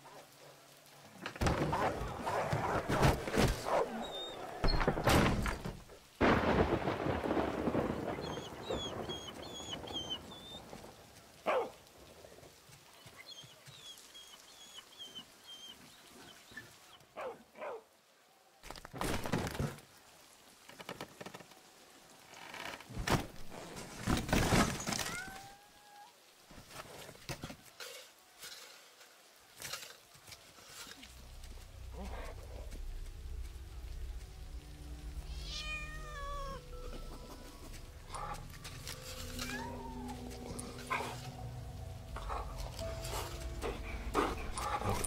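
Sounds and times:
rain patter: 0.0s - 45.0s
thunder rolls: 4.4s - 11.1s
faint high animal cries: 35.3s - 37.4s, 39.1s - 40.6s.

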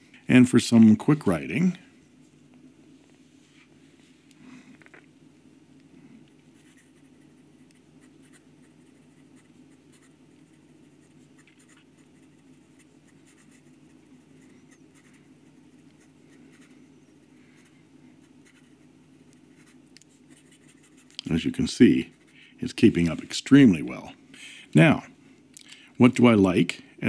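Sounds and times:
steady low hum: 0.0s - 27.0s
pen nib scratching paper: 6.6s - 16.8s, 17.6s - 21.2s.

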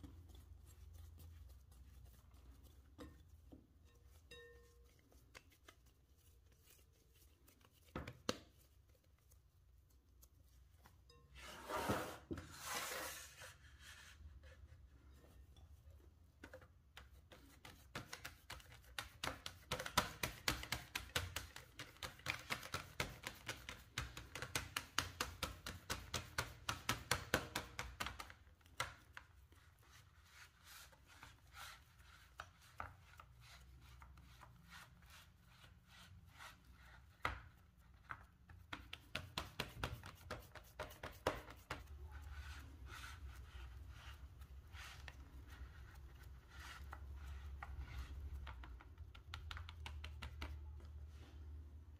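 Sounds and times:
fingers tapping dough in tin: 16.5s - 29.2s, 38.1s - 42.0s, 47.5s - 50.8s.

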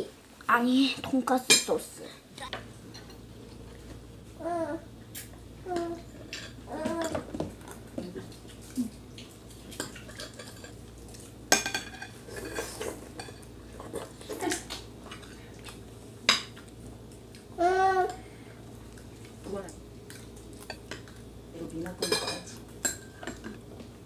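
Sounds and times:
cutlery clinking on plates: 9.7s - 10.8s, 11.5s - 14.1s, 22.0s - 23.6s.

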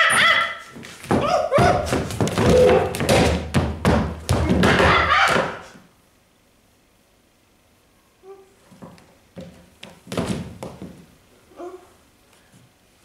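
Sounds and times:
person shrieking and hooting: 0.0s - 3.0s, 4.7s - 5.8s
feet thumping on wood: 0.2s - 5.8s, 8.7s - 11.1s.

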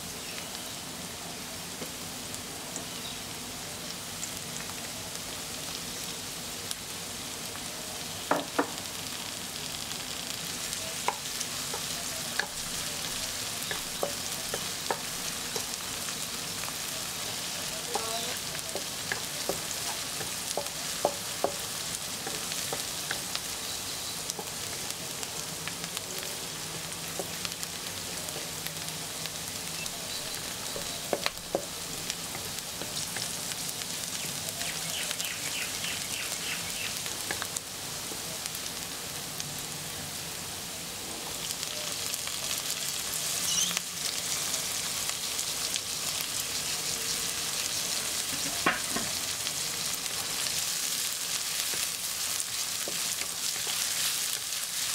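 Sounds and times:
vegetables sizzling in oil: 0.0s - 54.9s
spatula tapping on pan: 11.0s - 12.6s, 13.6s - 15.8s, 17.9s - 23.2s, 30.7s - 32.9s.

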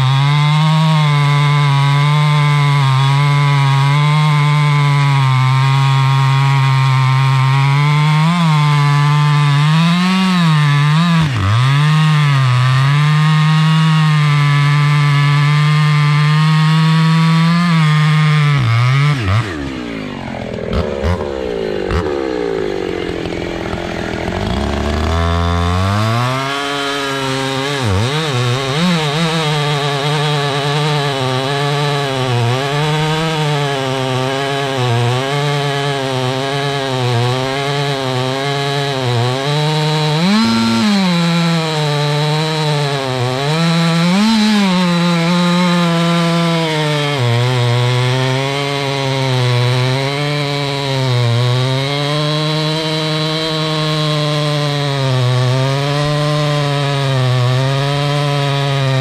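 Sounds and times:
chainsaw cutting a log: 0.0s - 59.0s.

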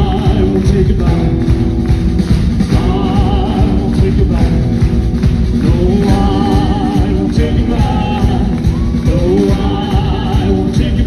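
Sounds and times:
person singing with vibrato: 0.0s - 1.7s, 2.6s - 11.0s
country band playing: 0.0s - 11.0s.

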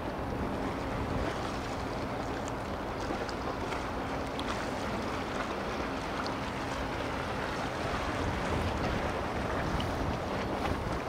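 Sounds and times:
ship engine hum: 0.0s - 11.0s
wind noise on microphone: 7.8s - 11.0s.

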